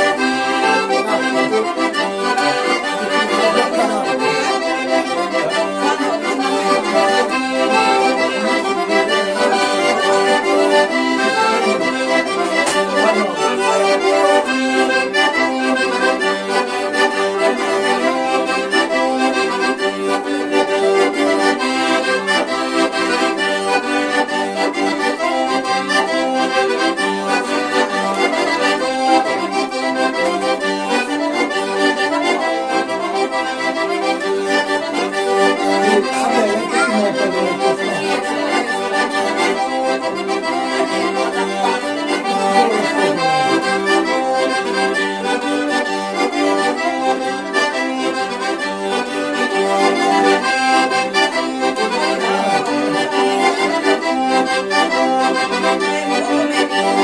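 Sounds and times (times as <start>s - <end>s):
accordions playing folk dance: 0.0s - 57.0s.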